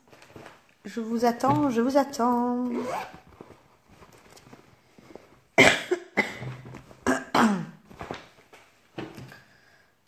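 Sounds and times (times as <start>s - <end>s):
woman coughing: 5.6s - 7.8s.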